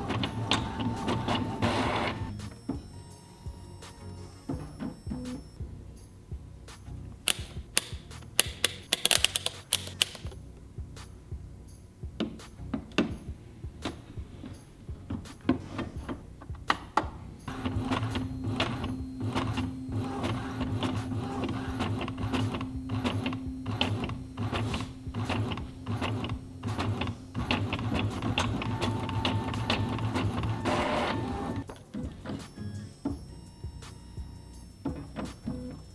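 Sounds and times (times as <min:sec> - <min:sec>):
paper feeding out of printer: 0:00.0 - 0:02.3, 0:17.5 - 0:32.4
printer clicking and humming: 0:00.0 - 0:05.5, 0:07.3 - 0:10.3, 0:15.8 - 0:35.9.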